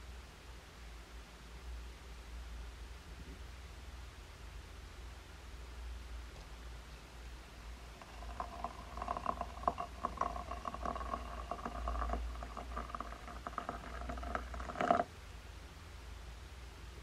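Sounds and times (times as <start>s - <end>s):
water pouring into glass teapot: 7.9s - 15.1s.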